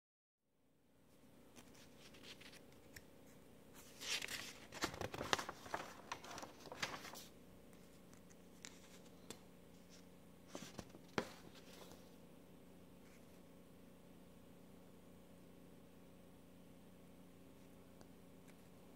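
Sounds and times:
faint steady hum: 0:00.5 - 0:18.9
paper pages rustling: 0:01.6 - 0:03.0, 0:03.8 - 0:12.2.

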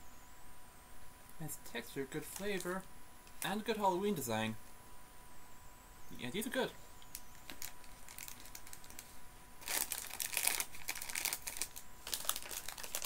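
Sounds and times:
plastic sweet packet crinkling: 0:02.2 - 0:03.6, 0:07.0 - 0:13.0.

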